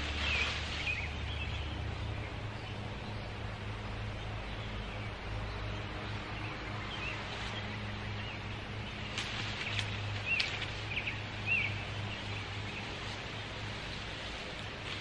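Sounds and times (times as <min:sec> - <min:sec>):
brush snapping and rustling: 0:00.0 - 0:01.3, 0:08.9 - 0:15.0
brush dragged over grass: 0:00.0 - 0:01.8, 0:08.9 - 0:15.0
bird chirping: 0:00.0 - 0:14.0.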